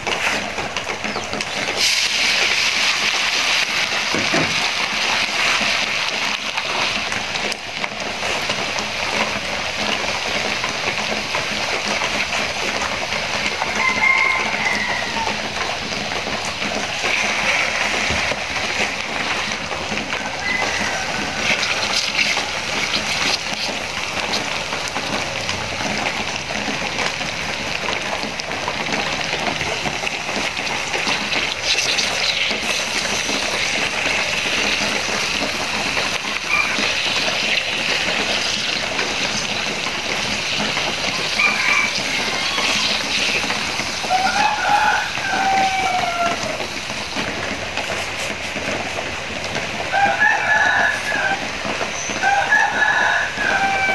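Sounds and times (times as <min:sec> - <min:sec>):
meat sizzling in sauce: 0:00.1 - 0:53.9.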